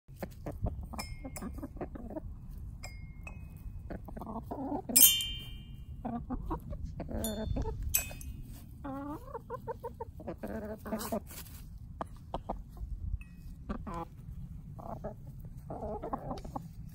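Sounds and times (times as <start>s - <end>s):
hens clucking: 0.1s - 2.8s, 3.4s - 5.0s, 5.8s - 16.9s
hens pecking xylophone notes: 0.1s - 11.1s.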